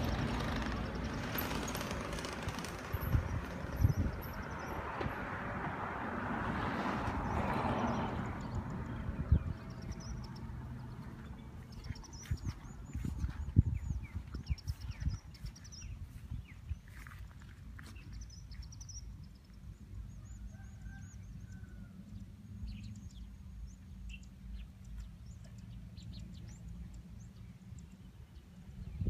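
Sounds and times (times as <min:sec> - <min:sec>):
birds trilling and chirping: 0:00.0 - 0:06.3, 0:06.9 - 0:29.0
wind rumble on microphone: 0:00.0 - 0:25.4, 0:26.0 - 0:29.0.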